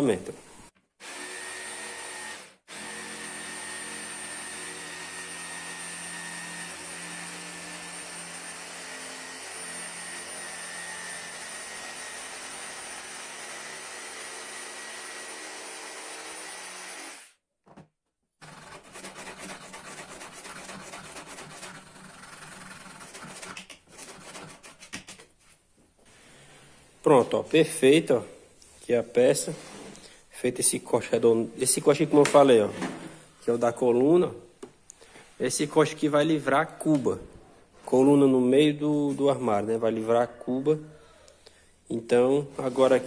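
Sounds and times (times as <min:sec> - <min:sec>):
jigsaw cutting wood panel: 0:01.0 - 0:17.4, 0:18.4 - 0:25.2.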